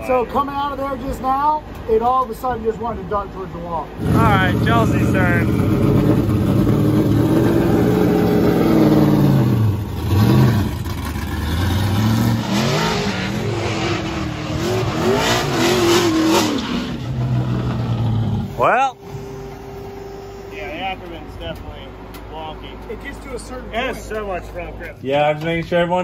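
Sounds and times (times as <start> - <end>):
car engine revving hard: 4.0 - 21.4
spinning tyres hissing: 4.0 - 24.2.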